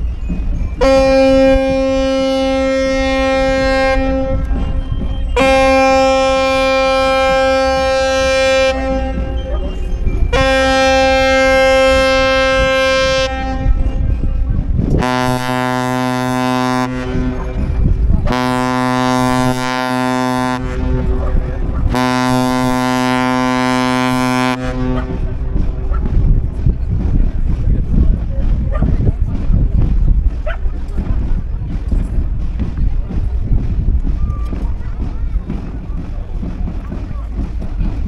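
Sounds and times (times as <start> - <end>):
deeper ship horn blasts: 0.8 - 4.5, 5.4 - 9.5, 10.3 - 14.1, 14.9 - 26.5
ship horn blasts: 0.8 - 4.7, 5.4 - 9.7, 10.3 - 14.2, 14.9 - 26.5.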